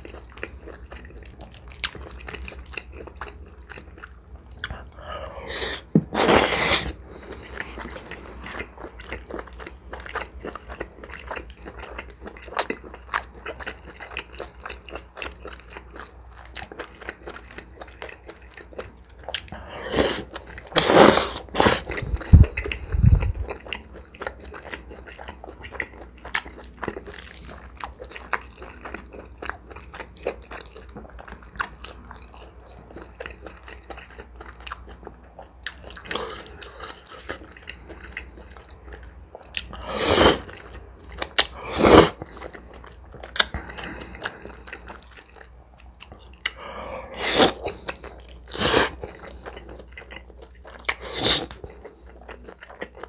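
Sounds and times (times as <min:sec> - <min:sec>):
noodles slurped: 0:19.8 - 0:23.4, 0:39.6 - 0:40.7, 0:41.4 - 0:42.5, 0:46.8 - 0:49.4, 0:50.9 - 0:51.8.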